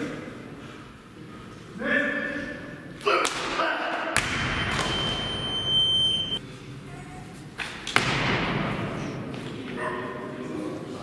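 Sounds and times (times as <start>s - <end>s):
echoing hall noise: 0.0s - 11.0s
steady high beep: 4.6s - 6.4s.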